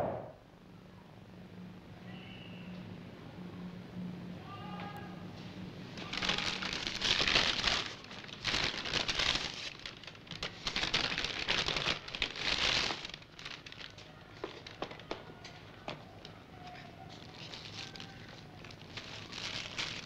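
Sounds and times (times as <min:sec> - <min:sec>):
paper bag crinkling and rustling: 0:05.9 - 0:20.0.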